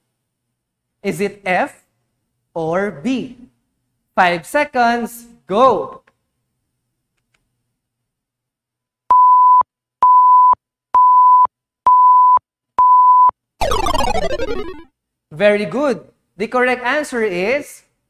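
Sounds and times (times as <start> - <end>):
countdown timer beeps: 9.1 - 14.9.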